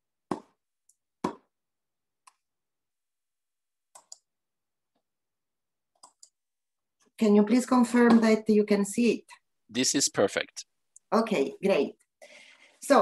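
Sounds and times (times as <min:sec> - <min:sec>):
computer mouse clicking: 0:03.9 - 0:04.3, 0:05.9 - 0:06.4.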